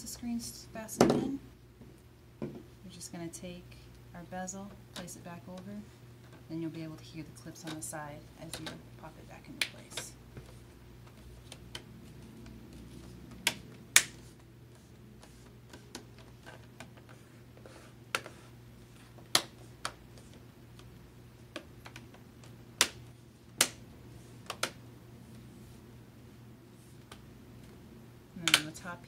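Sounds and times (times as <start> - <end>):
plastic clips snapping: 28.4 - 28.8.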